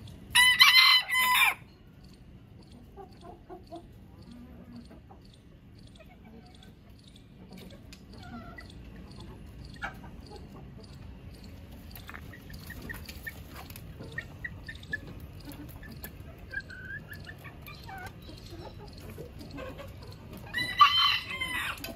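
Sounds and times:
chickens clucking: 0.0s - 21.9s.

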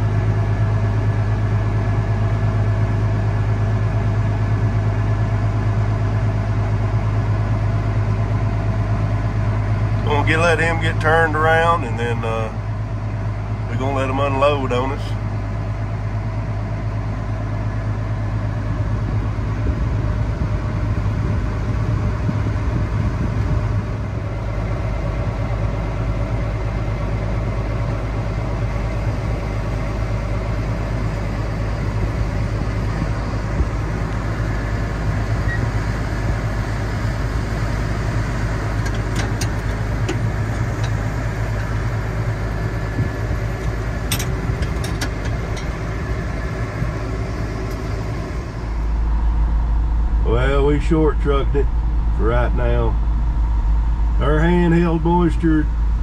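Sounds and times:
farm machinery engine drone: 0.0s - 56.0s.

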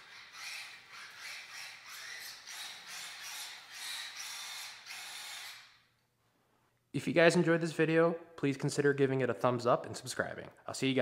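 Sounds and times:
toy truck electric motor whining: 0.0s - 5.9s.

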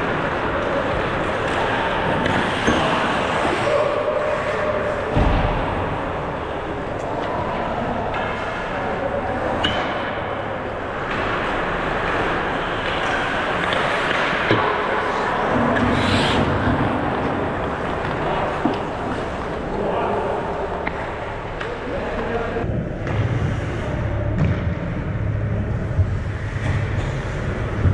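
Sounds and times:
low thud: 5.1s - 6.0s.

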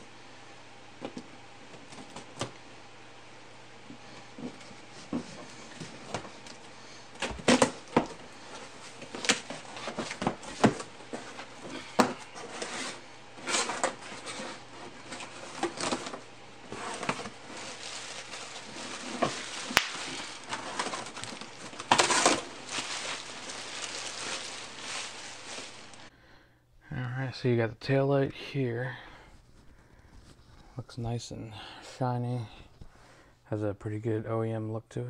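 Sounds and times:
bubble wrap crinkling: 7.2s - 26.1s
cardboard scraping and rustling: 7.2s - 26.1s.

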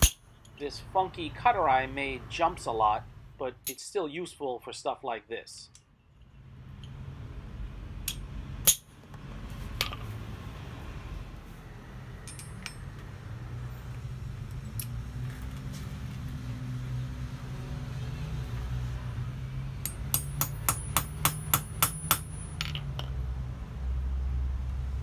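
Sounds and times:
hammer tapping metal on anvil: 19.8s - 23.2s.

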